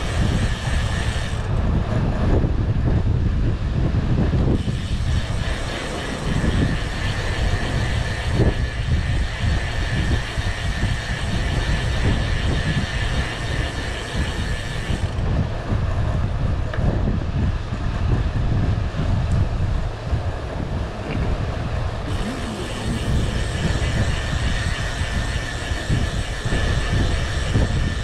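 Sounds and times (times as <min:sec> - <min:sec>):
bike tyres rolling on concrete: 0:00.0 - 0:28.0
wind buffeting microphone: 0:00.0 - 0:28.0
thin high hum: 0:19.0 - 0:28.0.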